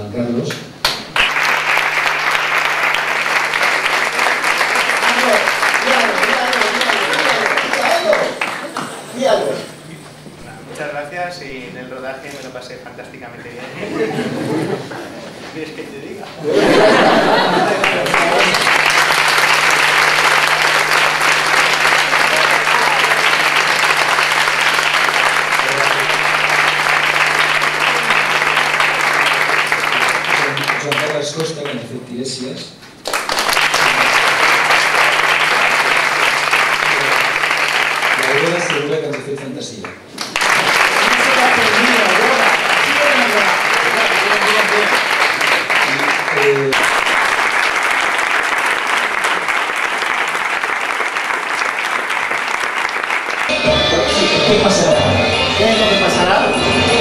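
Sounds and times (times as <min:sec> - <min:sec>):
audience applauding: 0:00.8 - 0:09.6, 0:16.5 - 0:31.9, 0:33.0 - 0:55.0.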